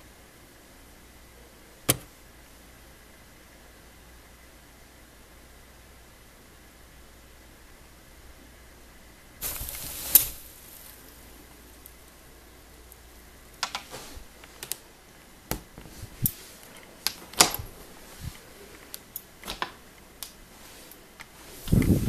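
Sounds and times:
sharp click: 1.9s - 2.1s
wood shavings rustling: 9.4s - 14.8s.

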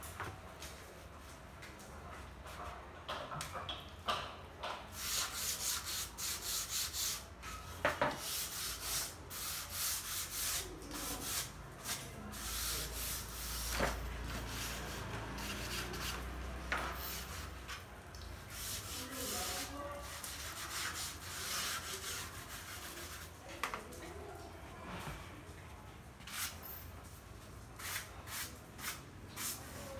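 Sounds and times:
hand sanding wooden plank: 5.0s - 7.3s, 8.2s - 16.3s, 18.5s - 23.3s.

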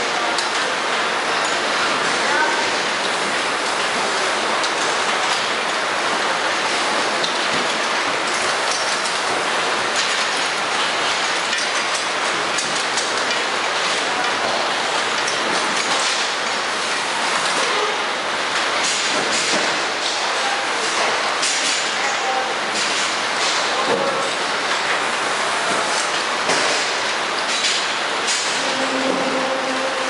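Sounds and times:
factory floor din: 0.0s - 30.0s.

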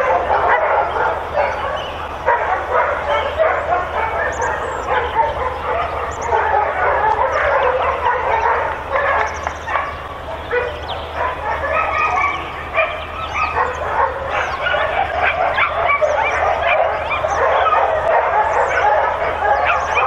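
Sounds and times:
dogs barking and yipping: 0.0s - 20.0s.

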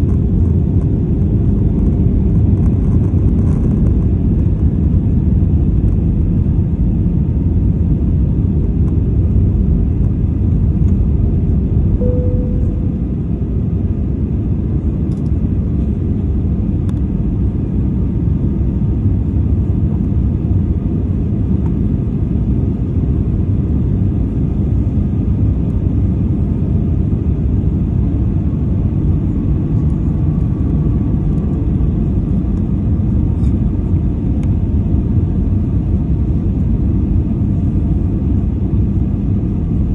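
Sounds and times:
jet engine cabin rumble: 0.0s - 39.9s
short cabin tone: 12.0s - 13.5s.

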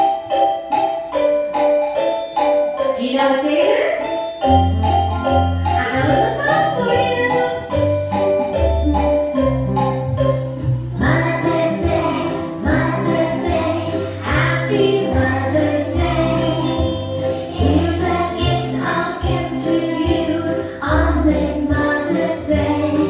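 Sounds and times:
backing track with bass line: 4.5s - 13.0s
children singing together: 11.0s - 23.0s.

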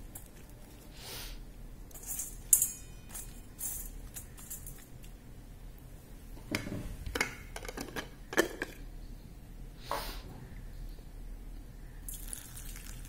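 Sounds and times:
objects being handled knocks: 6.4s - 8.8s.

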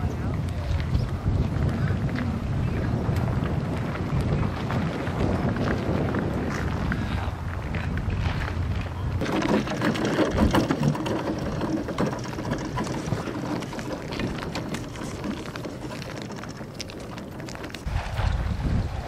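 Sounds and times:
steel runners scraping on ice: 9.2s - 18.2s.

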